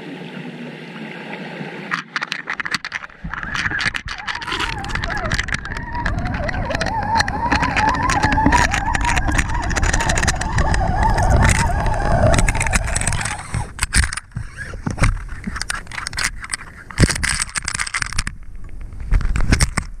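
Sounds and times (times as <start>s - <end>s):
water splashing and sloshing: 0.0s - 20.0s
underwater rumble: 2.6s - 17.2s.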